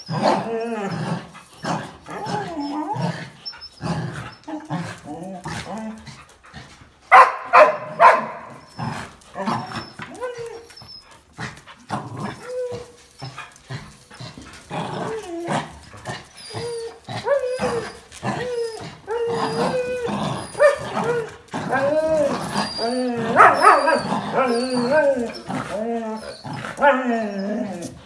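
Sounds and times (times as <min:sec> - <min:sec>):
dogs whining and growling: 0:00.0 - 0:07.1, 0:07.8 - 0:28.0
dog barking: 0:07.1 - 0:08.5, 0:23.4 - 0:24.0.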